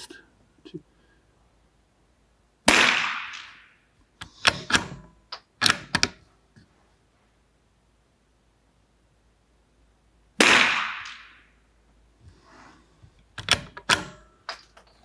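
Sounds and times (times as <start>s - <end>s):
rifle shot: 2.6s - 3.8s, 10.4s - 11.5s.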